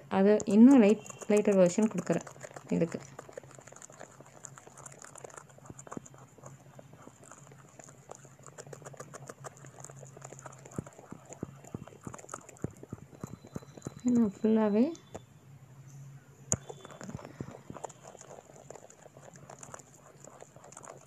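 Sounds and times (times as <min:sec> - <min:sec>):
low steady hum: 0:00.0 - 0:21.0
faint irregular clicks and taps: 0:00.3 - 0:03.4.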